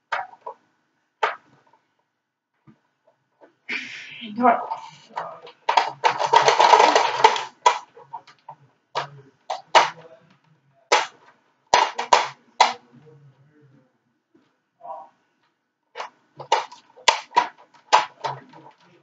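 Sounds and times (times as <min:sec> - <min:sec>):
plastic parts clicking and knocking: 0:00.0 - 0:00.6, 0:01.2 - 0:01.9, 0:04.7 - 0:12.9, 0:15.4 - 0:19.0
plastic rustling: 0:04.8 - 0:10.1, 0:16.0 - 0:19.0.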